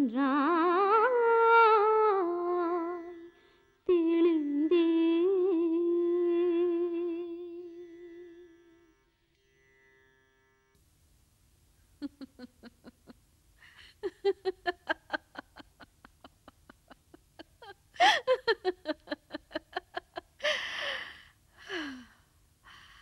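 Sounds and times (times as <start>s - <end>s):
woman laughing: 12.0s - 21.2s.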